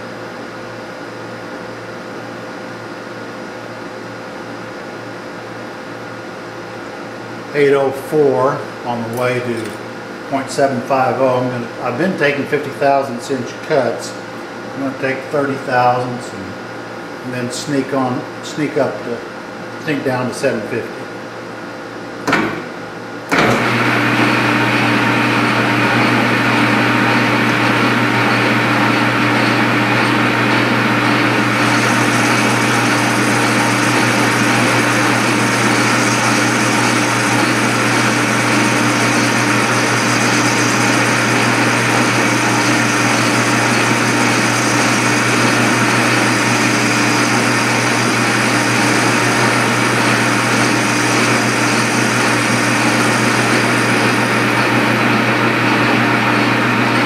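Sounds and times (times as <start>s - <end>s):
metal lathe humming and whining: 23.3s - 57.0s.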